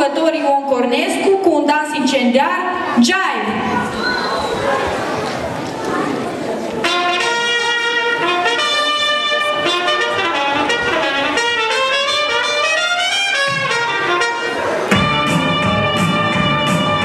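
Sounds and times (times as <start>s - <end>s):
brass swing dance music: 6.8s - 17.0s.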